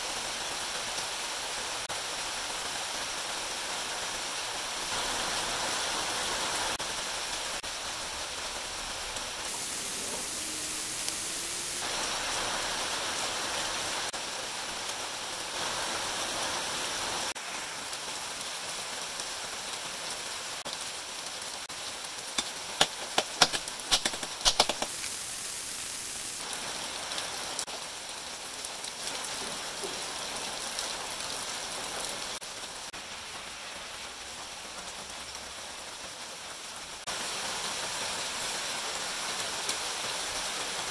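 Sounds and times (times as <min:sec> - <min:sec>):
steady hiss: 0:00.0 - 0:18.7, 0:21.7 - 0:27.8.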